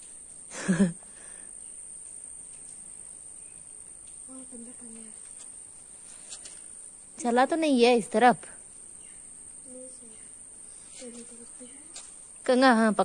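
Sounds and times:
crickets droning: 0:00.0 - 0:13.0.

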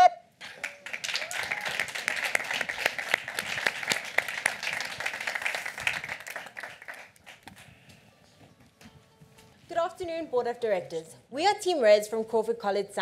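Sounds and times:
audience applauding: 0:00.4 - 0:07.7.

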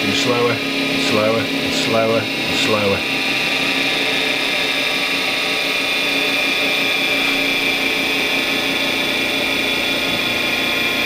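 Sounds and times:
lathe motor whining: 0:00.0 - 0:11.0.

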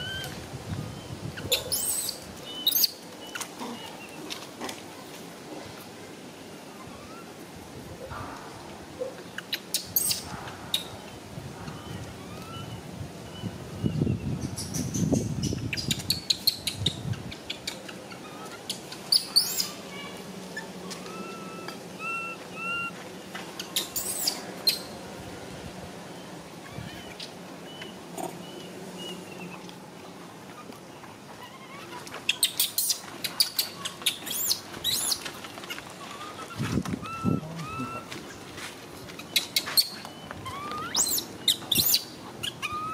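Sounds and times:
animal chirps and squeaks: 0:01.4 - 0:04.2, 0:09.4 - 0:10.9, 0:11.8 - 0:19.8, 0:20.6 - 0:22.9, 0:23.6 - 0:24.9, 0:31.4 - 0:38.2, 0:39.2 - 0:42.9
thin held animal call: 0:20.6 - 0:23.0, 0:36.0 - 0:38.1
infant monkey crying: 0:21.0 - 0:23.0, 0:36.1 - 0:38.1, 0:40.4 - 0:42.9.

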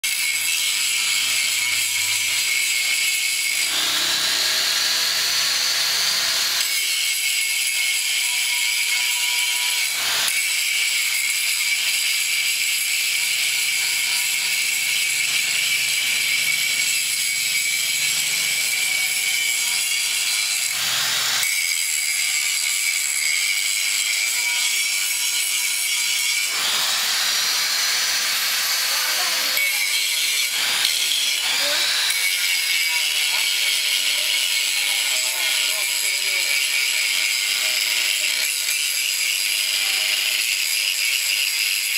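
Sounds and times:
angle grinder grinding metal: 0:00.0 - 0:41.9.

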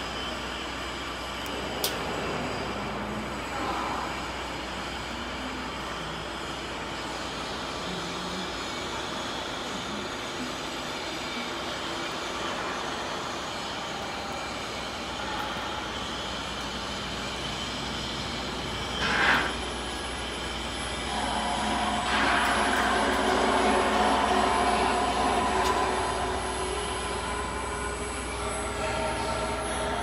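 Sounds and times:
electrical machine noise: 0:00.0 - 0:30.0
humming tones: 0:18.4 - 0:30.0.

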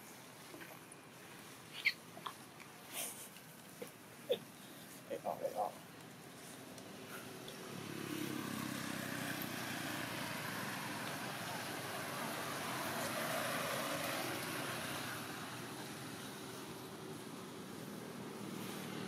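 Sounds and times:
passing vehicle engine and tyres: 0:04.4 - 0:19.0.

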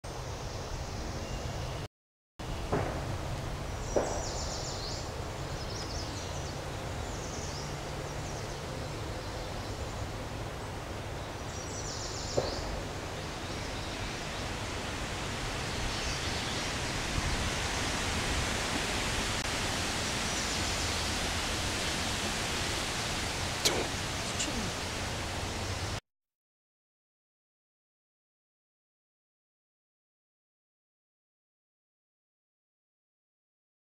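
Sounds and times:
outdoor background hiss: 0:02.4 - 0:26.0.

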